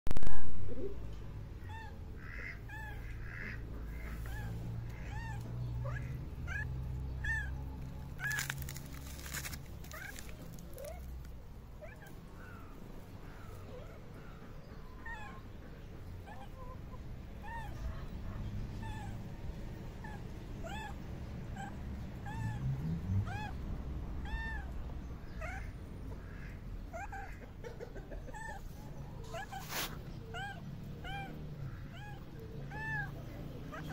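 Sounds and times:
cat mewing: 0:04.0 - 0:07.5, 0:18.8 - 0:19.3, 0:20.0 - 0:21.0, 0:24.2 - 0:24.8, 0:29.2 - 0:33.9.

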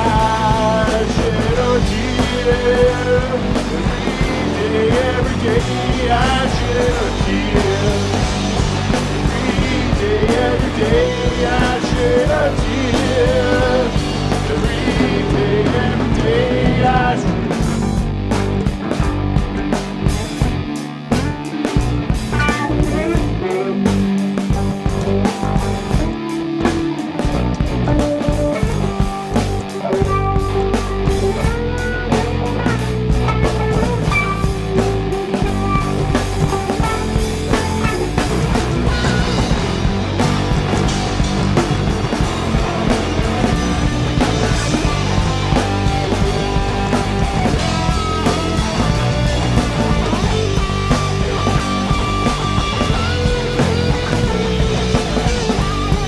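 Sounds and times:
electric guitars holding notes: 0:00.0 - 0:56.0
rock band playing: 0:00.0 - 0:56.0.

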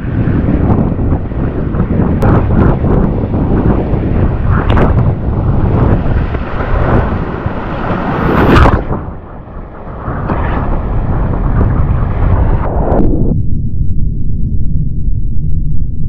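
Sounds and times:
choppy water rushing: 0:00.0 - 0:12.6
wind buffeting microphone: 0:00.0 - 0:14.7.

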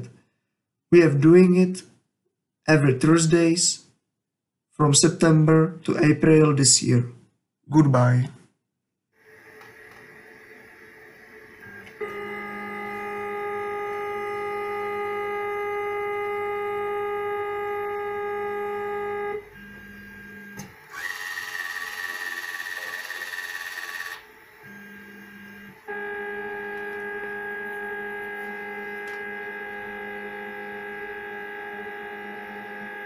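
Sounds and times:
motor whine: 0:09.2 - 0:33.0
servo buzz: 0:09.2 - 0:33.0.

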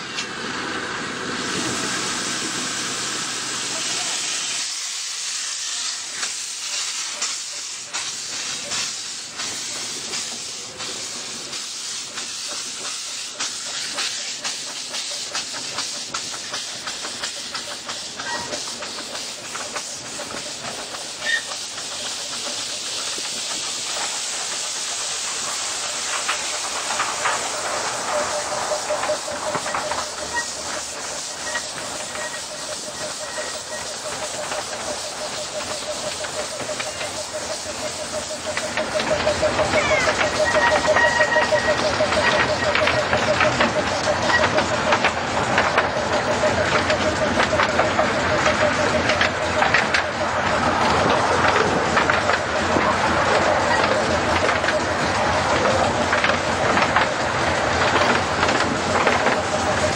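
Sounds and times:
steam locomotive hiss with ticks: 0:00.0 - 0:59.9.

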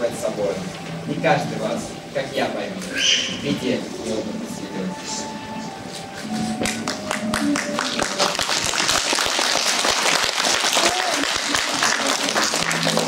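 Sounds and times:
music: 0:00.0 - 0:13.0
audience applauding: 0:06.6 - 0:13.0.

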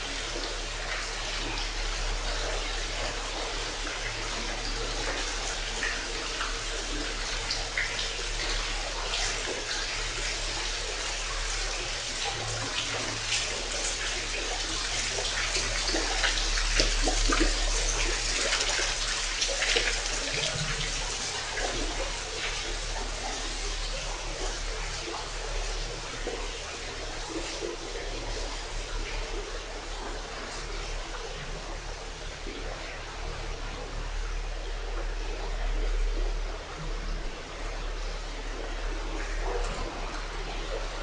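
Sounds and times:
water churned by propeller: 0:00.0 - 0:41.0.

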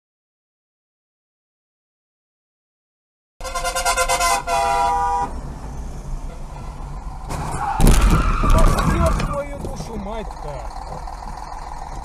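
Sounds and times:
car horn honking: 0:03.4 - 0:05.4, 0:06.2 - 0:07.0
engine and road noise: 0:03.4 - 0:12.0.

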